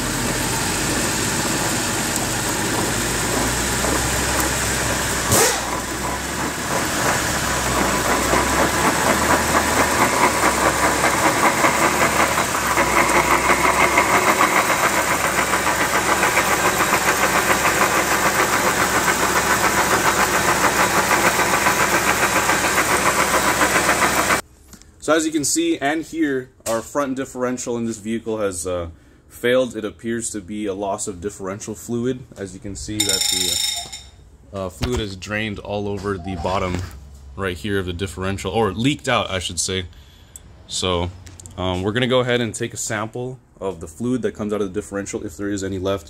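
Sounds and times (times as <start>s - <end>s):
car engine running: 0.0s - 24.4s
differential grinding and clunking: 0.0s - 24.4s, 32.9s - 34.2s
fast even pulsing: 0.8s - 24.4s.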